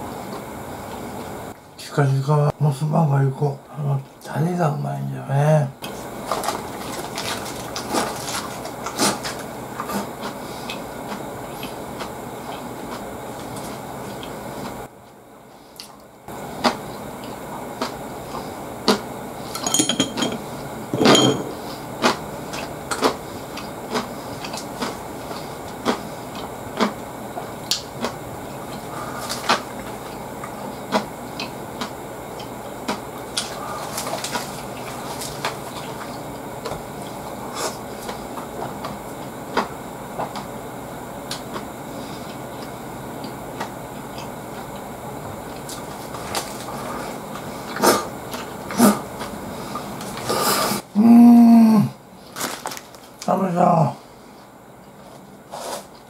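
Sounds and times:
chewing with mouth clicks: 7.2 - 14.4, 22.0 - 40.5
chopsticks clinking on tableware: 19.6 - 20.4, 21.0 - 21.6
wet chewing smacks and clicks: 22.1 - 27.0.

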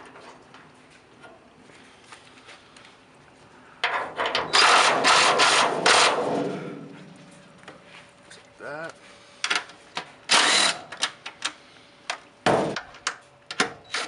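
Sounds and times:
power driver trigger bursts: 10.3 - 10.9.

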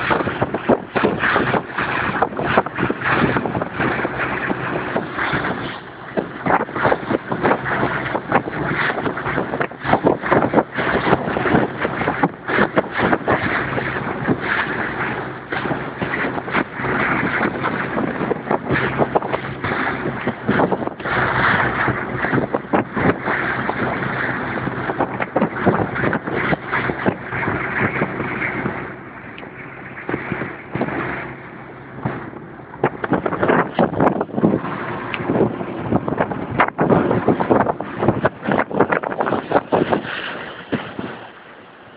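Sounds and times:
boat engine running: 0.0 - 41.9
water splashing against hull: 0.0 - 41.9
wind on microphone: 0.0 - 41.9.

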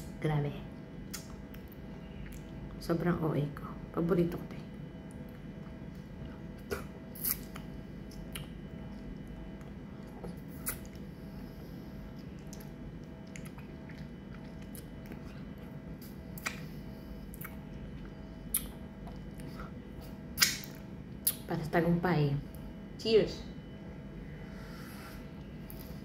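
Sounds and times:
low hum: 0.0 - 26.0
mouth clicks and smacks: 1.1 - 2.6, 16.4 - 16.7, 18.5 - 19.5, 20.4 - 21.4.

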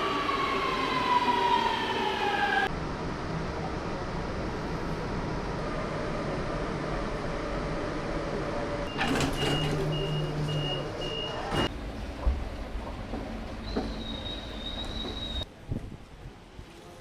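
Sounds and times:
metro train rumbling and humming: 0.0 - 17.0
high door warning beeps: 8.9 - 11.7.

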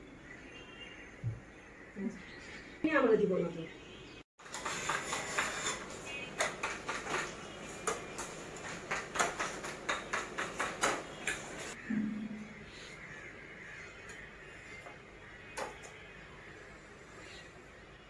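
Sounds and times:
metal spatula scraping ceramic bowl: 4.5 - 7.2.

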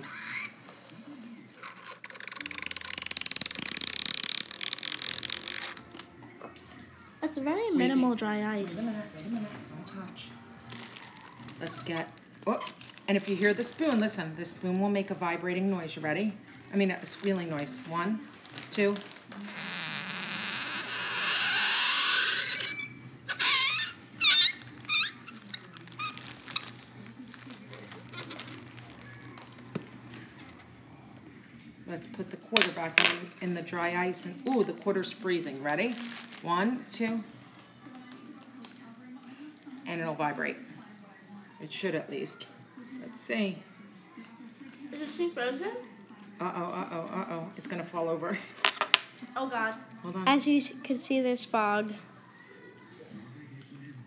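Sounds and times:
coin chattering on dry ice: 1.6 - 6.0, 19.5 - 26.9.

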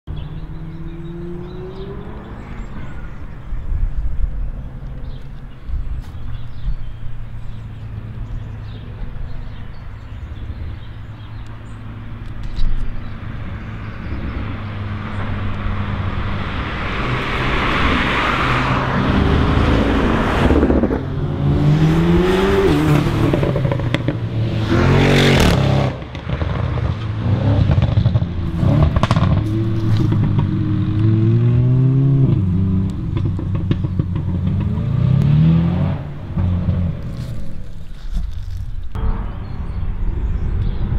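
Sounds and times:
cars accelerating past: 0.1 - 3.0, 6.5 - 37.6
steady low rumble: 36.2 - 40.9.

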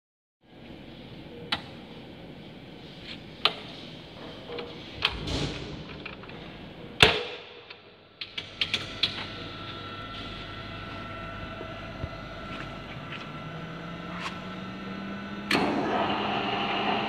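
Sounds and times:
steady electrical hum: 0.4 - 17.0.

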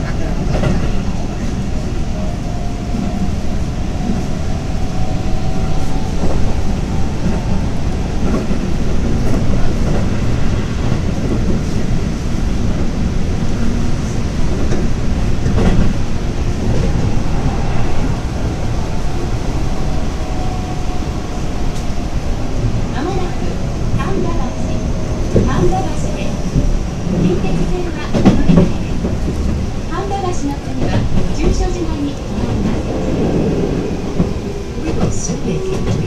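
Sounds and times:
rail joint clacks: 0.0 - 36.0
train wheels rumbling on rail: 0.0 - 36.0.

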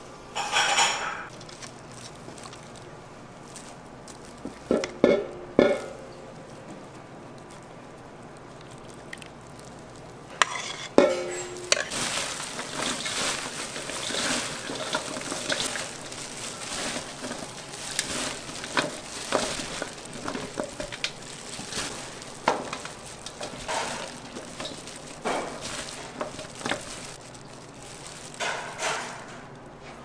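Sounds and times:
utensils and dishes clinking: 0.3 - 1.7, 3.6 - 6.6, 10.3 - 27.4, 28.0 - 29.6.

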